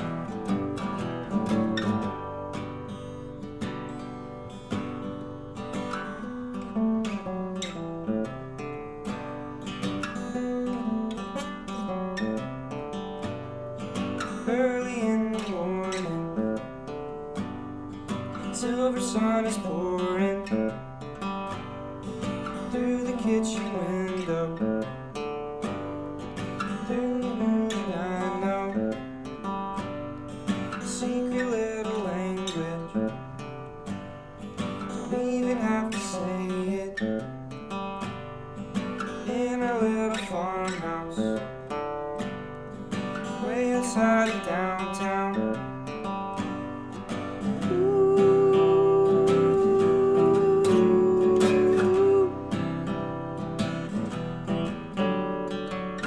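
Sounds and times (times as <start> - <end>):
fingerstyle acoustic guitar: 0.0 - 56.0.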